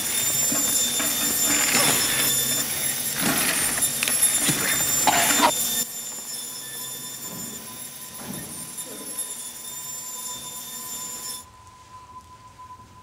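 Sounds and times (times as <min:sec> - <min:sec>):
machine whining and groaning: 0:00.0 - 0:13.0
steady hum of processing hall: 0:00.0 - 0:13.0.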